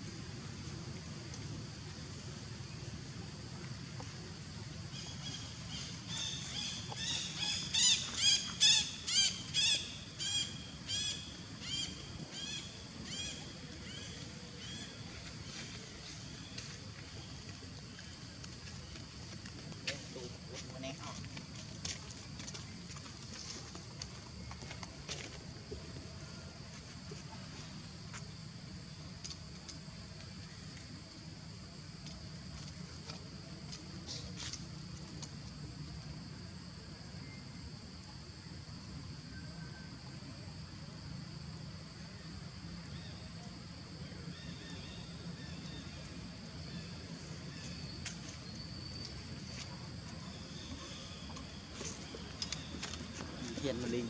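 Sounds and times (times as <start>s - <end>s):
insects droning: 0.0s - 54.0s
low outdoor background hum: 0.0s - 54.0s
bird calling: 5.0s - 15.0s.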